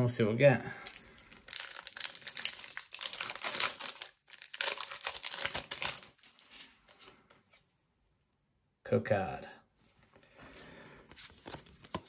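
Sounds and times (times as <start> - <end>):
foil wrapper crinkling: 0.8 - 6.8.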